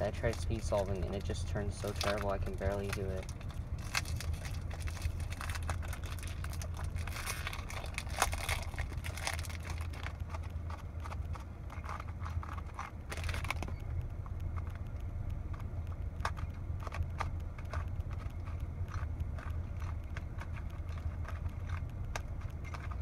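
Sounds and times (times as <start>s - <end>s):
plastic wrap crinkling: 0.0s - 14.9s
car cabin hum: 0.0s - 23.0s.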